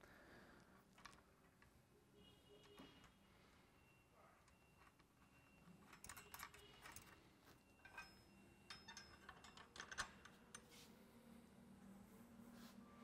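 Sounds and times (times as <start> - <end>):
small metal hardware clicking: 7.8 - 10.6.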